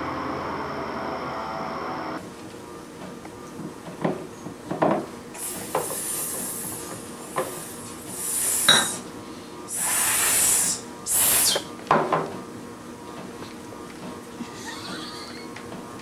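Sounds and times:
high hiss: 5.4s - 9.1s, 9.7s - 11.8s.

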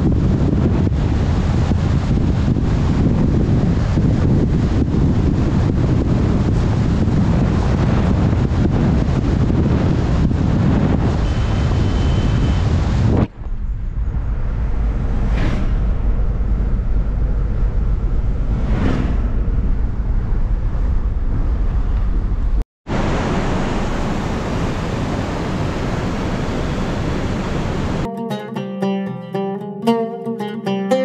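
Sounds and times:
vehicle engine and tyres rumbling: 0.0s - 28.1s
wind buffeting microphone: 0.0s - 28.1s
brief whooshes: 14.1s - 20.8s.

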